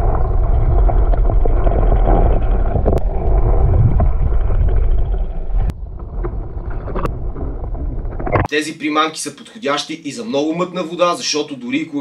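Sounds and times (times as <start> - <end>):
low underwater rumble: 0.0 - 8.5.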